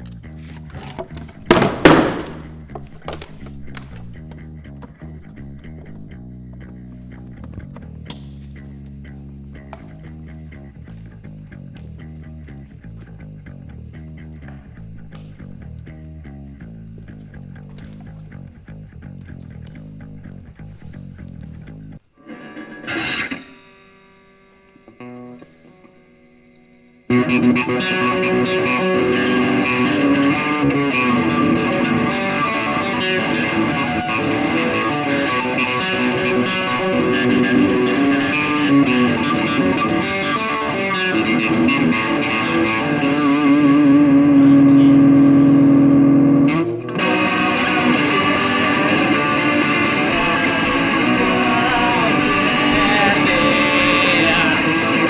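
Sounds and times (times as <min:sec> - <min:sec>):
distorted electric guitar: 0:00.0 - 0:55.0.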